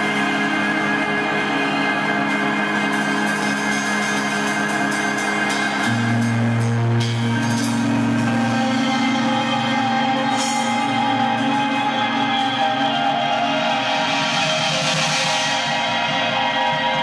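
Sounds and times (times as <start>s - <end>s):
electric guitar band music: 0.0s - 17.0s
deep low note: 5.8s - 12.7s.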